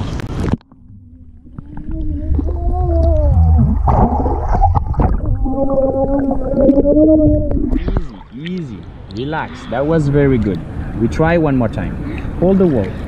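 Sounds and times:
underwater bubbles and water rumble: 0.0s - 8.3s
wavering hum-like underwater tones: 0.6s - 8.4s.

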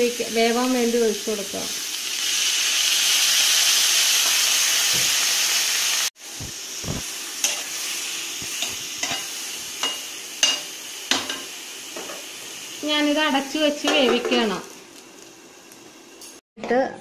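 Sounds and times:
mixture sizzling in a pan: 0.0s - 16.4s
metal spoon scraping a pan: 7.4s - 7.9s, 8.5s - 11.4s.

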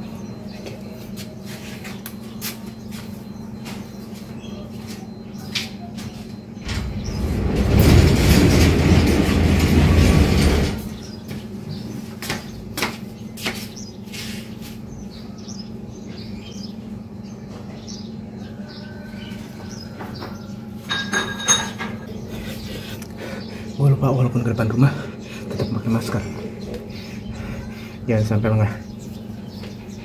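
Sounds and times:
metal sliding gate rolling: 6.6s - 11.2s.

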